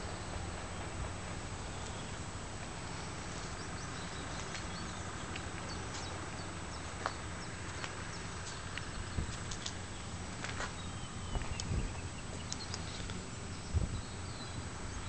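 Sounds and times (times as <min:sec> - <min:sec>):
small birds chirping: 0:00.0 - 0:15.0
steady low rumble: 0:00.0 - 0:15.0
faint clicks: 0:12.4 - 0:13.2.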